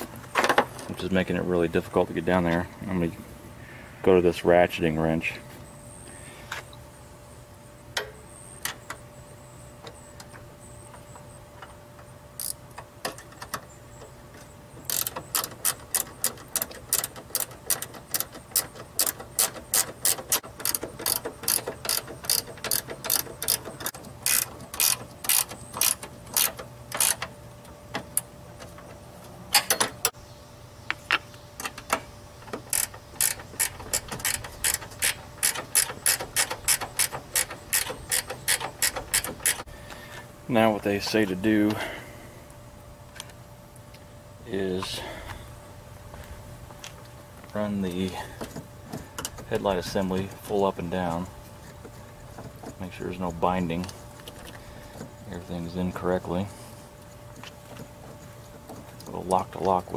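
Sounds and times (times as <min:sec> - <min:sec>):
ratcheting wrench clicking: 0:12.4 - 0:13.6, 0:14.8 - 0:27.3, 0:31.6 - 0:39.7.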